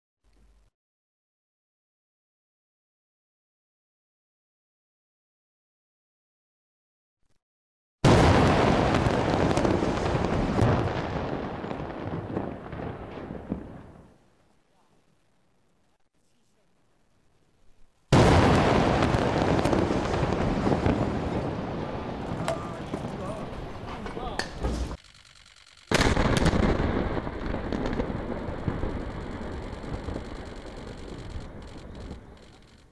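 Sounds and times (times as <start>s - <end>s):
building demolition explosion: 8.0s - 14.1s, 18.1s - 25.0s, 25.9s - 32.9s
rumble with crackling debris: 8.0s - 32.9s.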